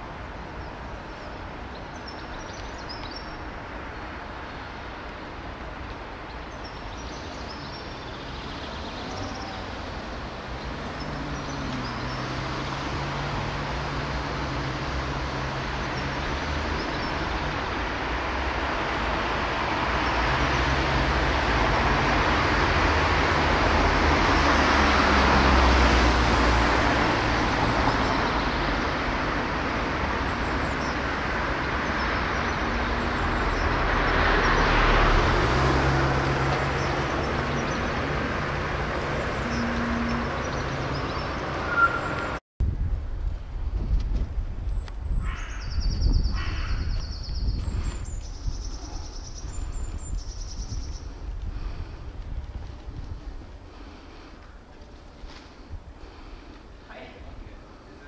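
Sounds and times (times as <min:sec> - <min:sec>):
road traffic passing: 0:00.0 - 0:58.0.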